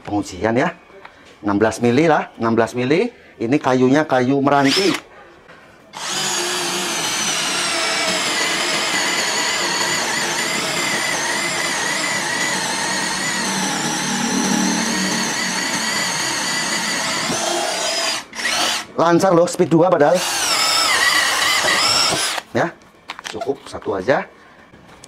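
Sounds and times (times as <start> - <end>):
cordless drill boring into wood: 4.6 - 5.0, 6.0 - 18.9, 20.1 - 22.4.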